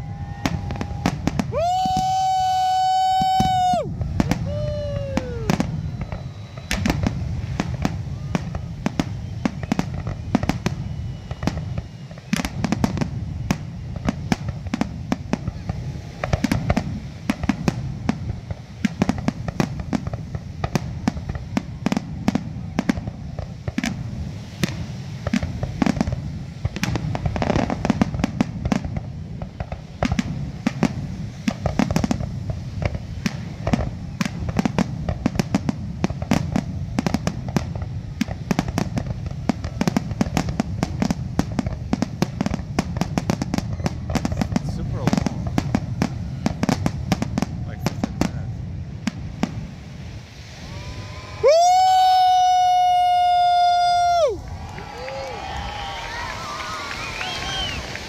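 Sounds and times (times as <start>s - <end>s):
fireworks banging: 0.0s - 58.0s
steady low rumble: 3.4s - 11.8s, 12.5s - 51.4s.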